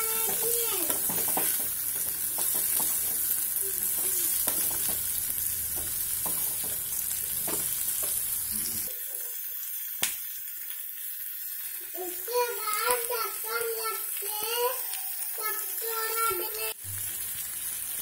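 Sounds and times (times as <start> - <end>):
spatula scraping and tapping pan: 0.0 - 8.9
vegetables sizzling in a pan: 0.0 - 18.0.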